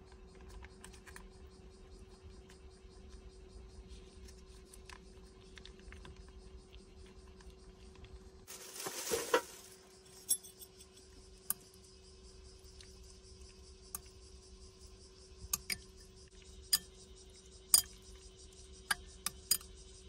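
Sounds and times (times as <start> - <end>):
faint steady hum: 0.0 - 20.0
foil sachet rustling: 8.5 - 9.8
sharp clink: 10.2 - 10.9, 17.7 - 18.0, 19.3 - 19.7
chopsticks clicking on glass bowl: 15.6 - 15.8, 18.9 - 19.7.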